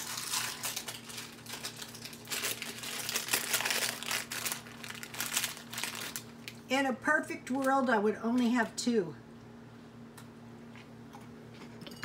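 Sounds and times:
cookie package crinkling: 0:00.0 - 0:06.7.

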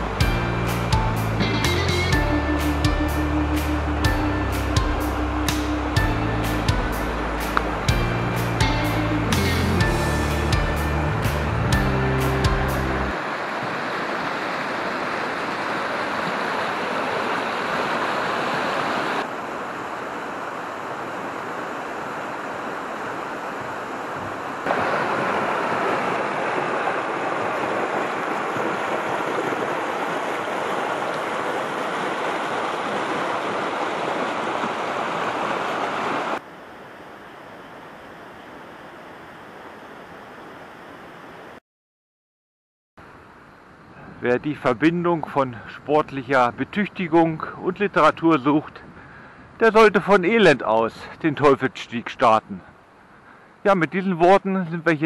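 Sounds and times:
river rushing over boulders: 0:00.0 - 0:41.6.

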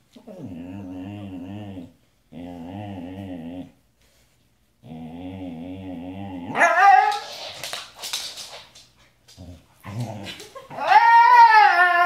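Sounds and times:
husky howling: 0:10.7 - 0:12.0.

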